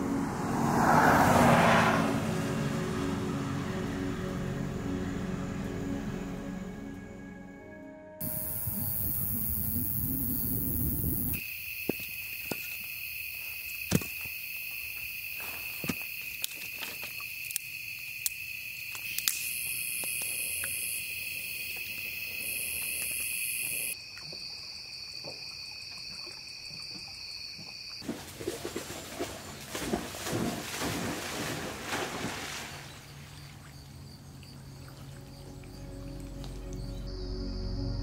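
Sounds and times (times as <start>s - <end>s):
insects chirring: 8.2s - 28.1s, 32.7s - 38.0s.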